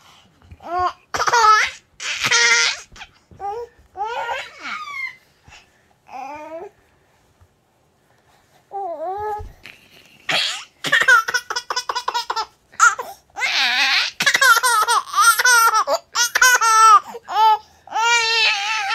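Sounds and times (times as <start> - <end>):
baby laughing: 1.1 - 3.2, 9.7 - 17.5.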